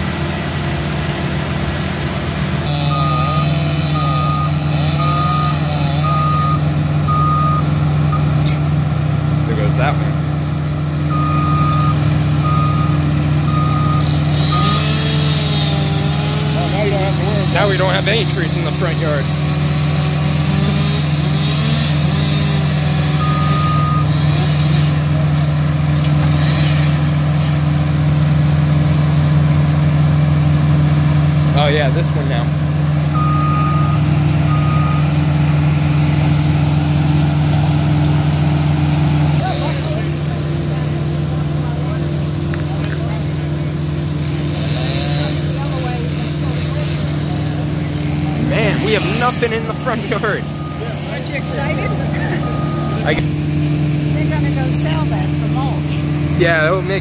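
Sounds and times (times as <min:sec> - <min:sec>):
loader engine running: 0:00.0 - 0:57.0
short high beep: 0:02.9 - 0:07.6, 0:50.5 - 0:53.2
reversing alarm beeps: 0:02.9 - 0:08.3, 0:11.1 - 0:15.0, 0:23.2 - 0:24.2, 0:33.1 - 0:35.2, 0:49.6 - 0:53.2.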